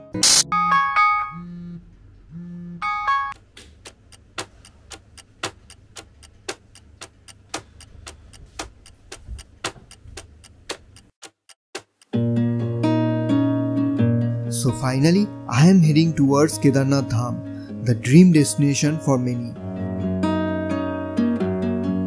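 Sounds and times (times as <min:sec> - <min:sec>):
smartphone alarm chime: 0:02.8 - 0:03.4
fast clock-like ticks: 0:03.8 - 0:12.1.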